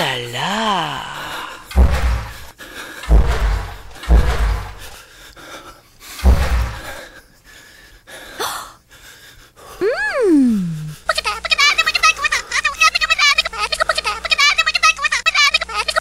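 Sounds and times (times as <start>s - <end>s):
heavy gasping breathing: 0.8s - 1.7s, 4.7s - 11.1s
dull thumps on camera: 3.1s - 4.9s.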